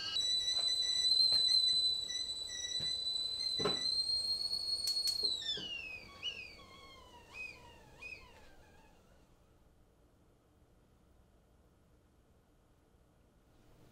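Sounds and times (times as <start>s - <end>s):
kettle whistling: 0.0s - 9.4s.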